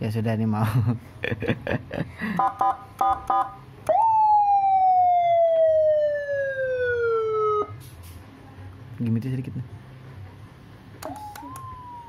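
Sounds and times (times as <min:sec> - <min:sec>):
siren wail: 0:03.9 - 0:07.8, 0:11.0 - 0:12.0
electronic siren short beeps: 0:11.0 - 0:12.0.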